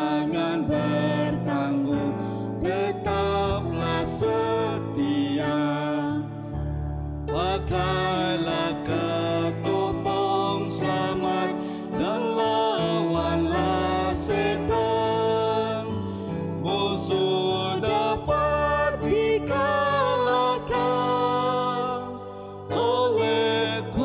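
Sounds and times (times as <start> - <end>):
man singing: 0.0 - 6.2, 7.3 - 16.0, 16.6 - 24.0
woman singing: 0.0 - 6.2, 16.8 - 24.0.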